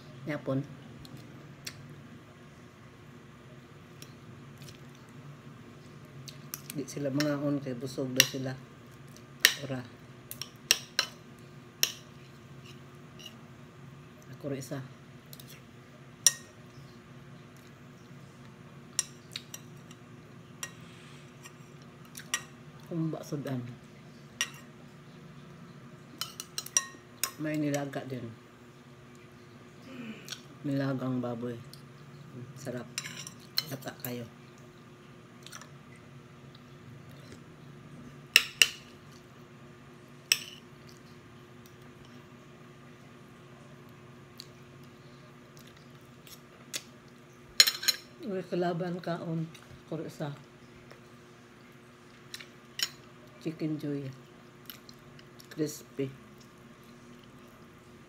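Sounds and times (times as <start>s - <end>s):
cutlery clinking on glass bowl: 47.6s - 48.1s.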